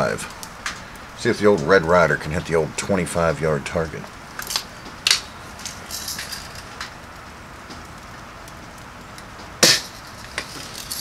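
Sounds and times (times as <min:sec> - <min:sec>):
gun handling clicks: 0:04.4 - 0:06.9
bb gun shot: 0:09.6 - 0:10.0.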